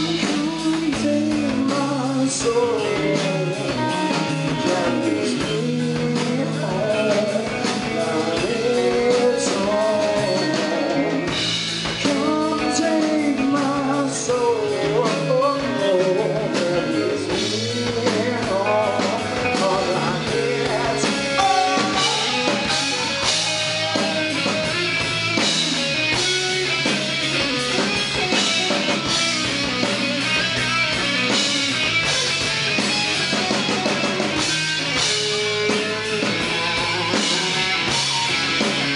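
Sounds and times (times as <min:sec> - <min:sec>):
person singing: 0:00.0 - 0:11.4, 0:12.0 - 0:24.9
bass guitar: 0:00.0 - 0:38.9
drum kit: 0:00.0 - 0:38.9
electric guitars: 0:00.0 - 0:38.9.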